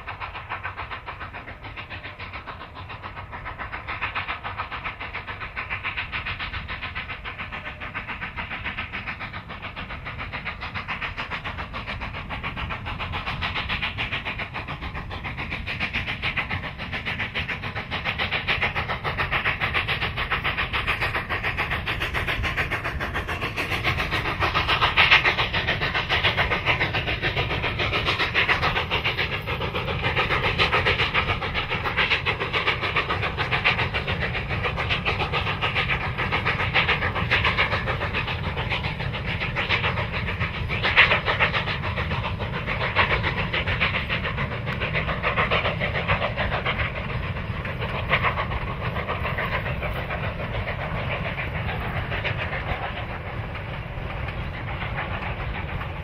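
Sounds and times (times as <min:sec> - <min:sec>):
steam locomotive exhaust beats: 0:00.0 - 0:56.0.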